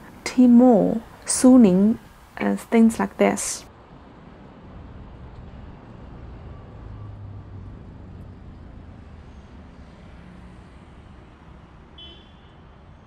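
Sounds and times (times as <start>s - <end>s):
street traffic rumble: 0.0s - 13.0s
vehicle engine hum: 3.7s - 11.9s.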